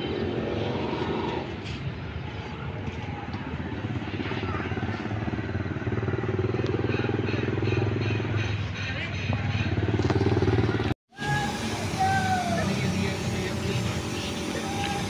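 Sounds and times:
small engine running: 9.8 - 15.0.

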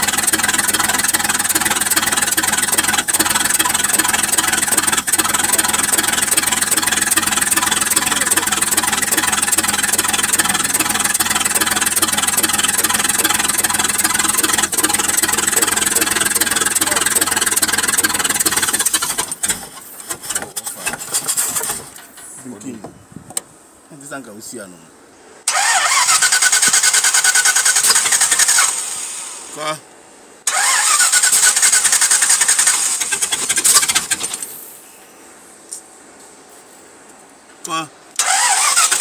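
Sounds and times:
car engine idling: 0.0 - 22.8, 30.5 - 34.6.

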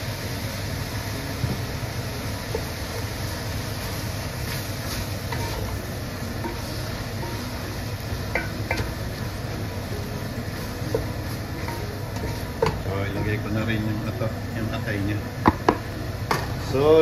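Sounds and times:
meat sizzling: 0.0 - 17.0
steady low hum: 0.0 - 17.0
wooden spoon stirring meat: 2.5 - 14.2.

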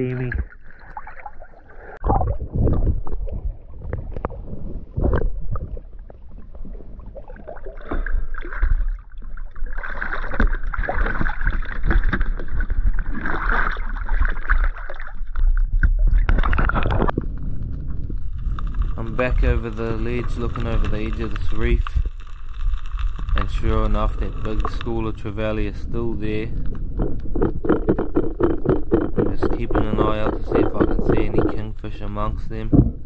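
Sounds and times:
sea water sloshing and splashing: 0.0 - 32.4
water gurgling: 0.0 - 33.0
heavy low rumble: 16.9 - 33.0.

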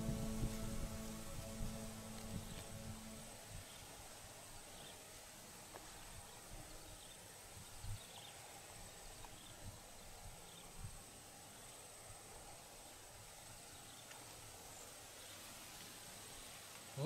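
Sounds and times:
thin high-pitched hum: 0.0 - 3.9.

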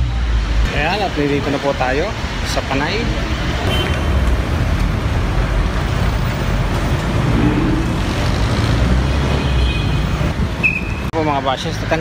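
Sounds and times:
road and traffic noise: 0.0 - 12.0
vehicle engine droning: 4.2 - 9.5.

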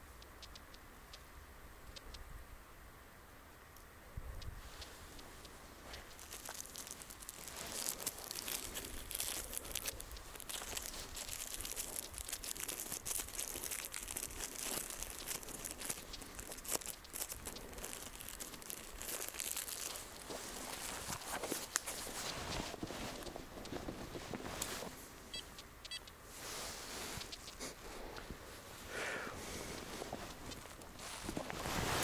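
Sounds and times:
snow crunching: 4.6 - 17.0, 17.6 - 25.1, 26.3 - 32.0.

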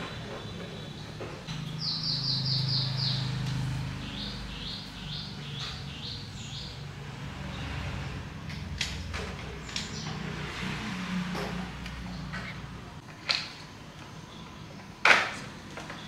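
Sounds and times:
bird chirping: 0.0 - 8.2, 9.0 - 10.5.

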